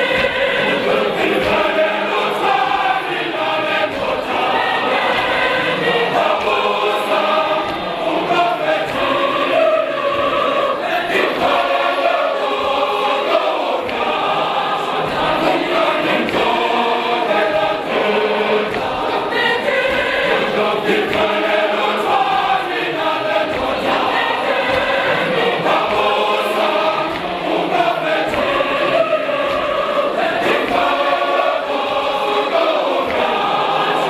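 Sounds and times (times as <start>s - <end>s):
choir singing gospel in harmony: 0.0s - 34.0s.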